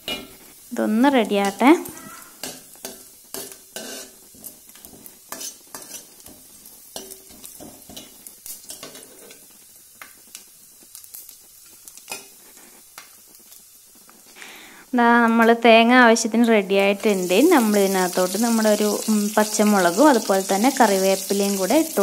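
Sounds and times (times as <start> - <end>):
faint sizzle: 0.0 - 22.0
spoon scraping metal pan: 1.4 - 6.4, 7.0 - 9.4.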